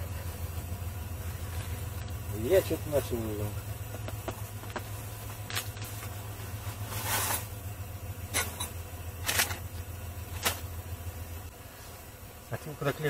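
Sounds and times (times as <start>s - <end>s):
low hum and hiss: 0.0s - 13.0s
short rustles: 4.7s - 7.6s.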